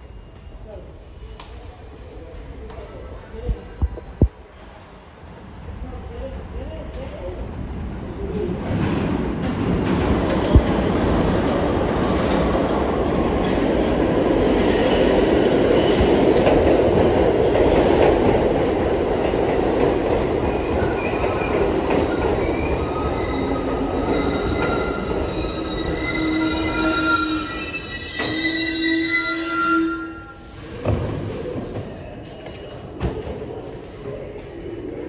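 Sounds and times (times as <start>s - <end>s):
train wheels rumbling on rail: 6.8s - 29.0s
wheel and brake squeals: 22.6s - 30.7s.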